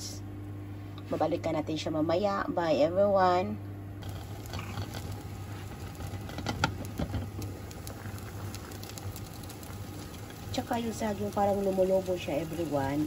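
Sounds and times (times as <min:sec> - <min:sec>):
low hum: 0:00.0 - 0:13.0
water boiling in a pot: 0:04.0 - 0:13.0.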